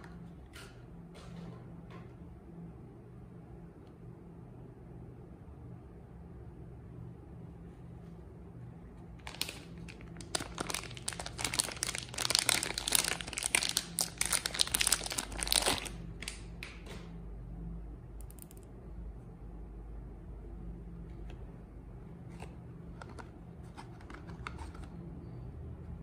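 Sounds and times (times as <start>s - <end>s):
soap wrapper crinkling: 9.2s - 16.4s.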